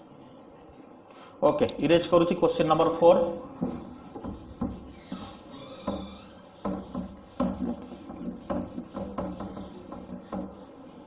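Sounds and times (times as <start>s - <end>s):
duster scrubbing a whiteboard: 3.6s - 11.0s.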